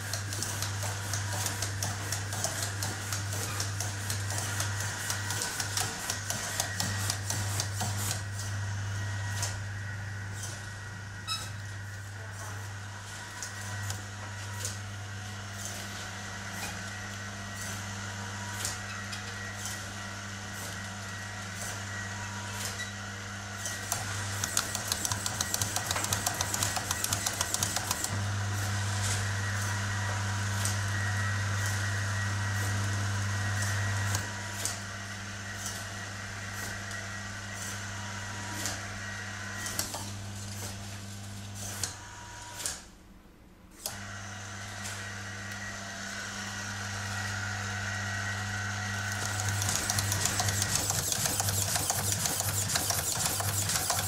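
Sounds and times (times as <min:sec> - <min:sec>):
blinds motor humming: 0:00.0 - 0:42.6, 0:43.8 - 0:54.0
servo motors clicking: 0:23.9 - 0:28.1, 0:49.1 - 0:54.0.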